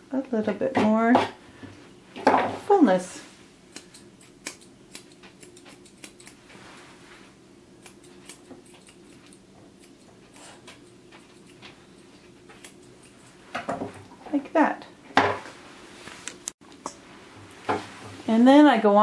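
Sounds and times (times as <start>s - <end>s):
scissors snipping hair: 3.7s - 6.9s, 7.8s - 13.4s.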